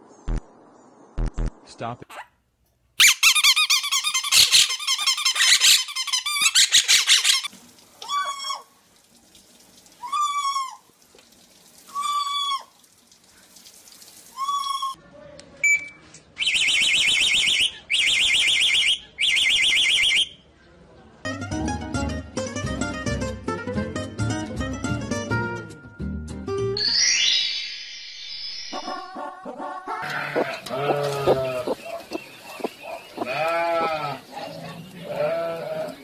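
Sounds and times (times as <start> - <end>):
parrots squawking: 3.0 - 8.6, 28.8 - 34.5
high-pitched bird calls: 16.4 - 20.3, 26.8 - 34.2.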